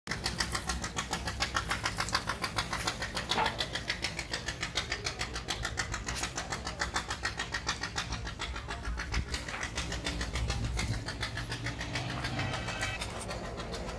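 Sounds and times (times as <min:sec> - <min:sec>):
diesel engine clattering: 0:00.1 - 0:13.9.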